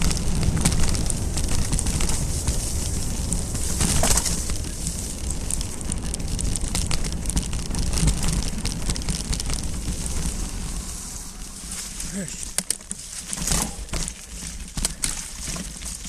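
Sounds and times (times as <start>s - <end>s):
wind rumble on microphone: 0.0s - 12.0s
tyres crackling over loose dirt: 0.0s - 16.0s.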